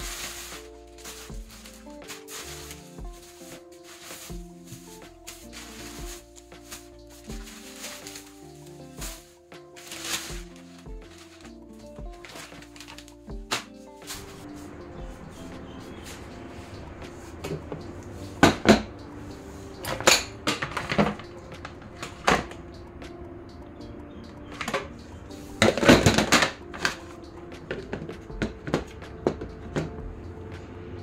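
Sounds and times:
plastic containers clattering: 0.0 - 8.4, 9.8 - 14.4, 19.8 - 22.6, 24.5 - 25.0, 25.6 - 27.0, 27.6 - 30.0
soft background music: 0.0 - 31.0.

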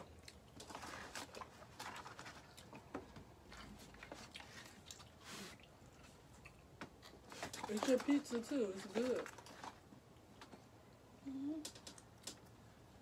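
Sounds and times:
chewing: 0.0 - 8.1.

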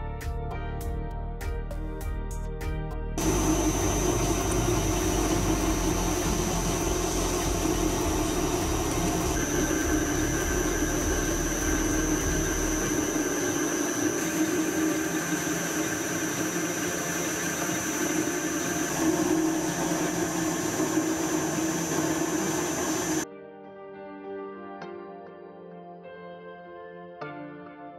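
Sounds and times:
high whine: 3.2 - 23.2
metal lathe running: 3.2 - 23.2.

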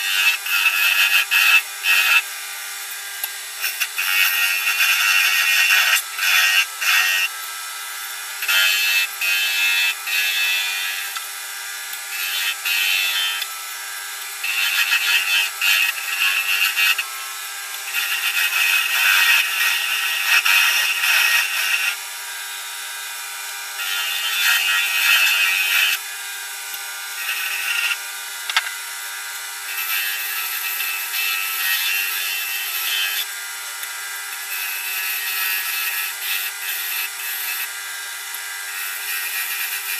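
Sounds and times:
wood lathe humming: 0.0 - 39.9
turning tool scraping wood: 14.4 - 17.2, 17.8 - 22.0.

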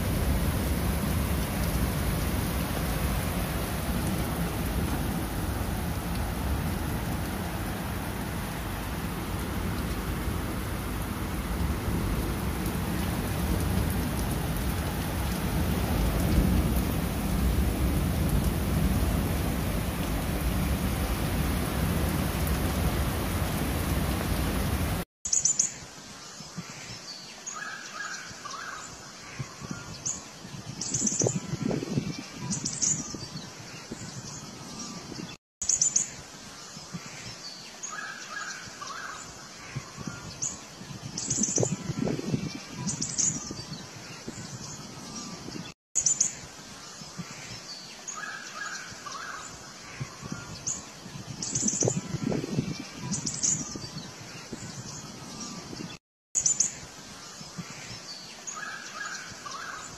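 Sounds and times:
heavy rain: 0.0 - 25.0
thunder rumbling: 0.0 - 25.0.

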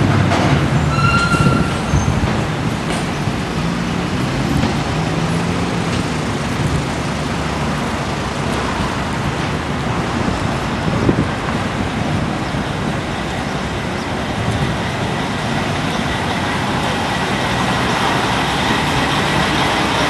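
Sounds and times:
passing vehicles rushing: 0.0 - 20.0.

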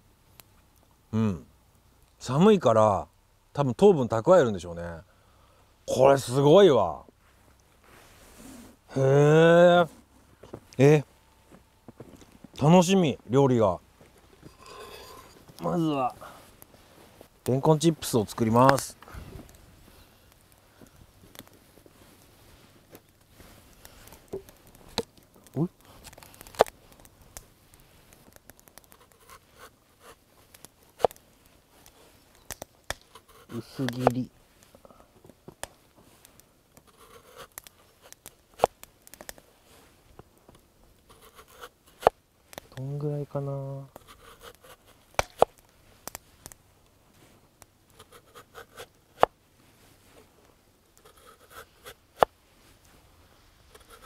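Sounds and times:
soft scraping: 7.2 - 8.8, 14.0 - 20.1
knife cutting and scraping: 28.8 - 30.2, 32.9 - 34.2, 36.8 - 39.2, 41.1 - 42.1, 44.0 - 45.5, 47.9 - 49.3, 51.0 - 52.3, 53.7 - 54.0.

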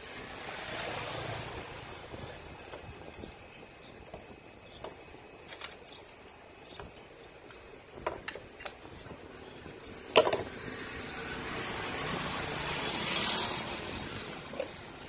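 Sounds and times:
wires and cable ties rustling: 2.2 - 9.2
pliers clacking onto workbench: 10.2 - 10.5.

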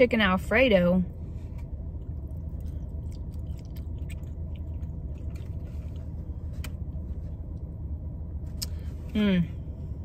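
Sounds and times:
low rumble inside a car: 0.0 - 10.0
person chewing food: 1.6 - 7.0.

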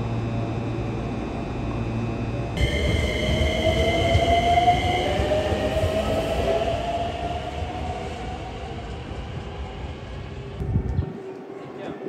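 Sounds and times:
electric train motor whine: 0.0 - 11.0
train wheels rumbling on rails: 2.6 - 11.4.

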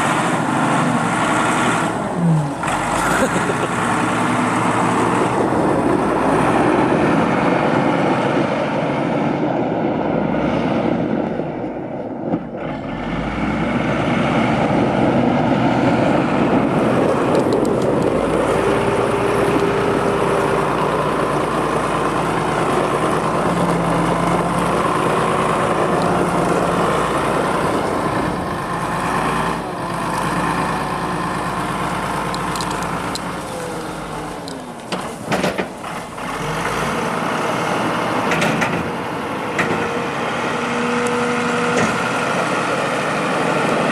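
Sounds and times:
wheel loader diesel engine: 0.0 - 43.9.

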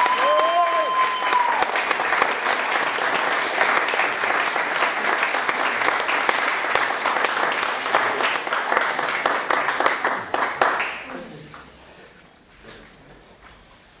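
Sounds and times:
audience applause: 0.0 - 11.2.

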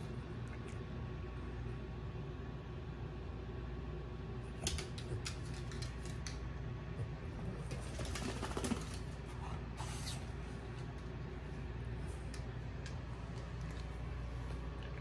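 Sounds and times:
low steady hum: 0.0 - 15.0
dog claws tapping on wooden floor: 4.6 - 6.4.

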